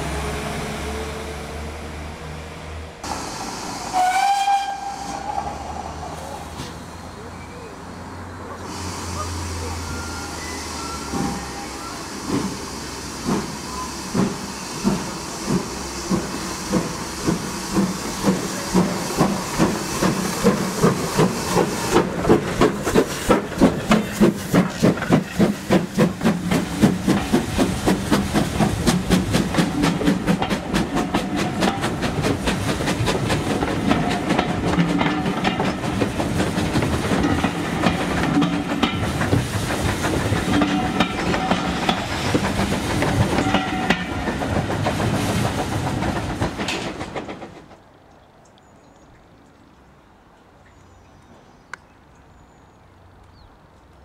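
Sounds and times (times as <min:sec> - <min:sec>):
hissing steam: 0:03.0 - 0:47.6
steam locomotive exhaust beats: 0:08.6 - 0:47.8
train wheels clicking on rail joints: 0:08.6 - 0:47.9.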